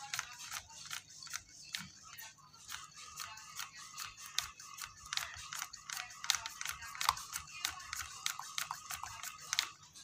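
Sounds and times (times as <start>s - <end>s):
plastic syringe clicks and taps: 3.6s - 9.8s.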